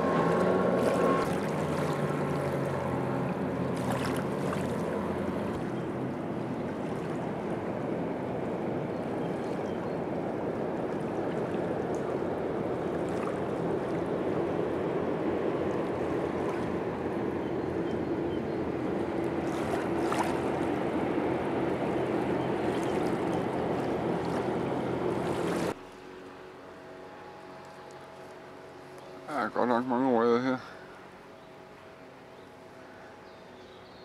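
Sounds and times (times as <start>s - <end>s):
small waves washing: 0.0s - 17.8s, 18.6s - 29.5s
distant boat engine droning: 0.0s - 34.0s.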